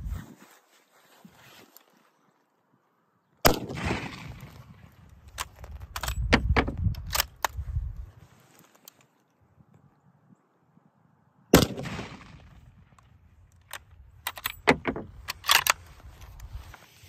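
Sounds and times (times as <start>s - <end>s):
rifle shot with echo: 3.4s - 4.8s, 11.5s - 12.8s
rifle bolt clicking: 13.6s - 15.8s.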